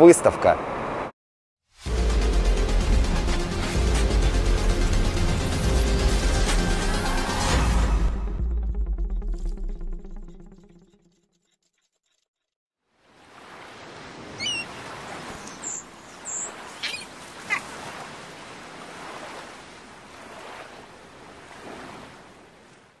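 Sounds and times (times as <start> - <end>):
high bird chirps: 14.4 - 17.7.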